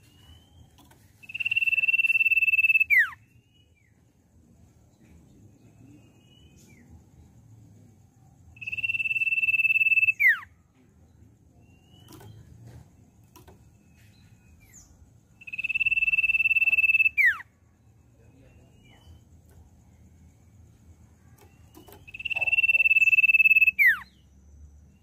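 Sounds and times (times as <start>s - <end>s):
bird whistling: 0.0s - 3.2s, 8.6s - 10.5s, 14.7s - 17.5s, 21.6s - 24.2s.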